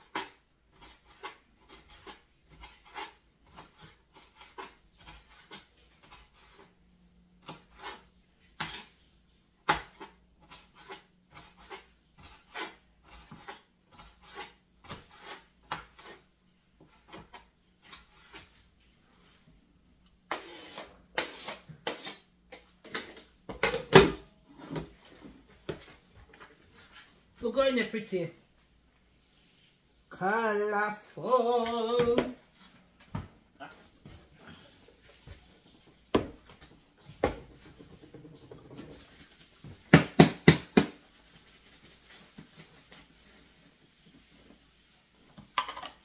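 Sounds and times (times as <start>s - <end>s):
kitchen knocks and clinks: 22.9s - 25.0s
clattering and rustling: 32.2s - 40.0s, 40.8s - 46.0s.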